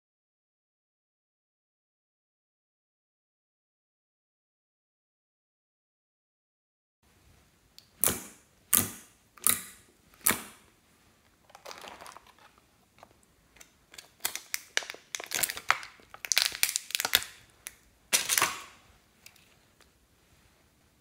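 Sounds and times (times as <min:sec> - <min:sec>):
plastic bottles crinkling and clicking: 0:11.4 - 0:19.6
sticky slime squishing: 0:11.5 - 0:18.7.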